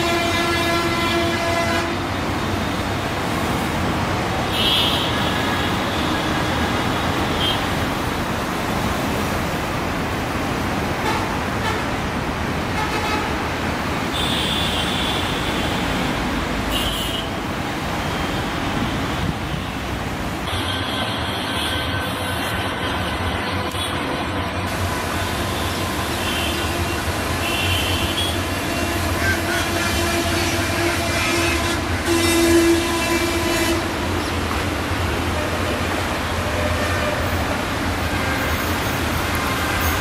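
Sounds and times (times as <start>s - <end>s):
road traffic noise: 0.0s - 40.0s
high-pitched vehicle horn toots: 26.1s - 33.9s.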